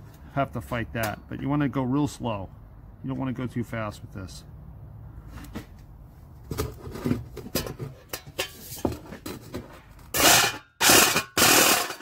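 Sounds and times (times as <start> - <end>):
jigsaw cutting sheet steel: 10.2 - 12.0.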